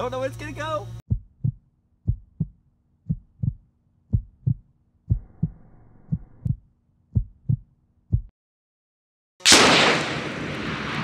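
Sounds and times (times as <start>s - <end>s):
heartbeat thumps: 1.1s - 8.3s.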